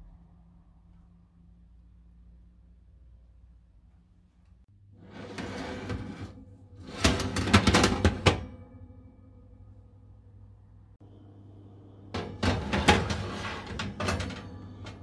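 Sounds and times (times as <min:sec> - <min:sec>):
fan oven hum: 0:00.0 - 0:15.0
baking tray scraping on rails: 0:05.0 - 0:08.6, 0:12.1 - 0:15.0
metal clatters and knocks: 0:05.4 - 0:08.8, 0:12.2 - 0:15.0.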